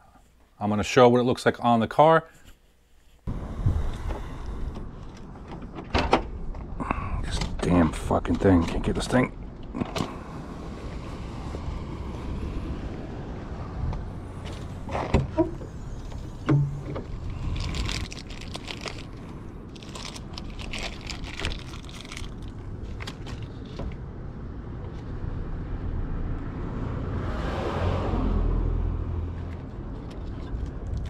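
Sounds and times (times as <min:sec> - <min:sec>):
low outdoor rumble: 0:03.3 - 0:27.3
plastic bag crinkling: 0:17.3 - 0:23.6.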